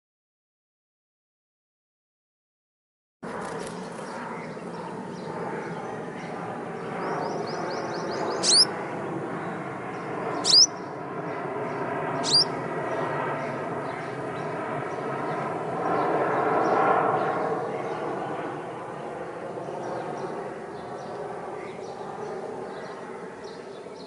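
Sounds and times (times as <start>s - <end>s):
bird calling: 7.5s - 8.7s, 10.4s - 10.8s, 12.2s - 12.5s.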